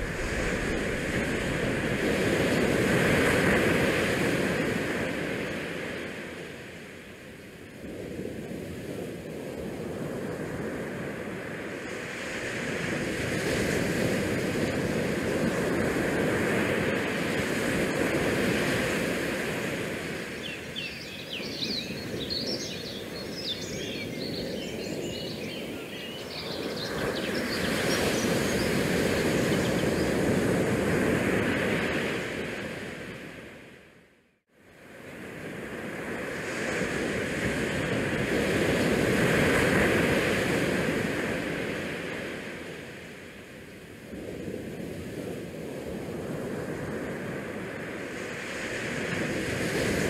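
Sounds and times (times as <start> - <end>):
wind and sea rushing: 0.0 - 50.0.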